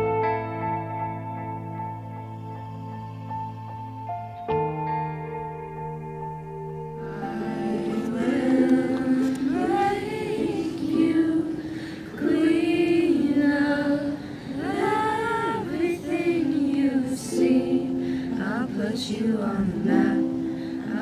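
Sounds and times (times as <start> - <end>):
soft instrumental music: 0.0 - 21.0
group singing unaccompanied: 7.0 - 21.0.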